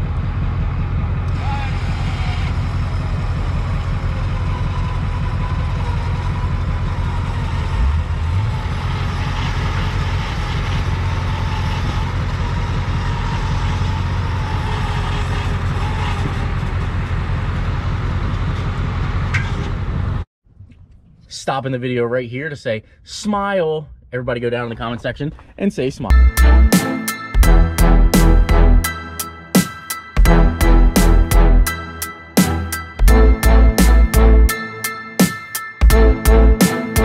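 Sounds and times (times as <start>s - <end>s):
pickup engine running: 0.0s - 20.2s, 26.1s - 34.6s.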